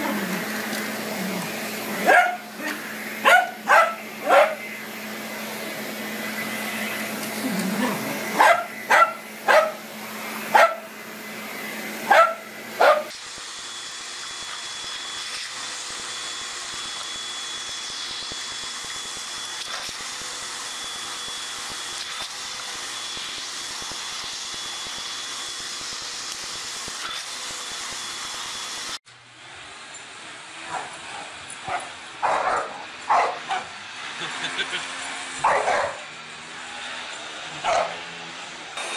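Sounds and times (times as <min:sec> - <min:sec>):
vacuum cleaner running: 0:00.0 - 0:38.9
dog barking: 0:02.0 - 0:04.6, 0:08.4 - 0:09.8, 0:10.5 - 0:10.9, 0:12.1 - 0:13.1, 0:31.7 - 0:33.7, 0:35.4 - 0:36.1, 0:37.6 - 0:38.0.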